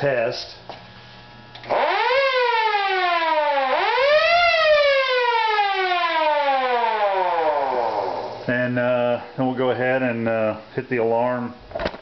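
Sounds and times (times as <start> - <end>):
siren winding up and down: 1.6 - 8.5.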